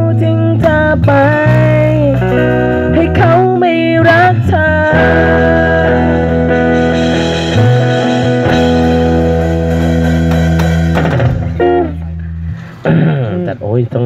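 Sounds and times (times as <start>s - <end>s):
person singing: 0.0s - 8.1s
acoustic guitar: 0.0s - 13.5s
bass guitar: 0.0s - 14.0s
drum struck with sticks: 7.1s - 12.1s.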